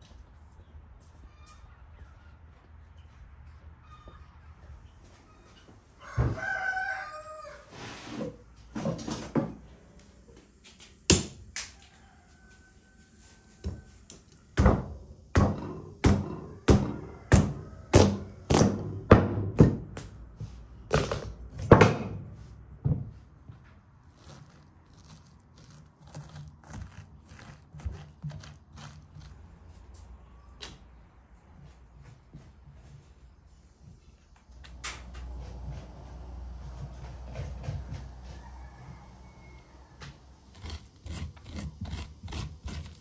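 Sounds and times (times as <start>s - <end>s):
rooster crowing: 6.0s - 7.8s, 11.7s - 14.4s, 16.4s - 18.5s, 37.6s - 41.6s
knife chopping through pumpkin: 14.6s - 19.8s, 24.0s - 29.4s, 40.5s - 43.0s.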